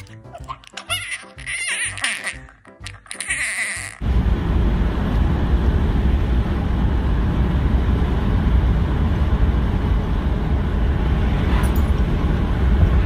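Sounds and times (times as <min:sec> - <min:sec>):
low road rumble: 0:04.0 - 0:13.0.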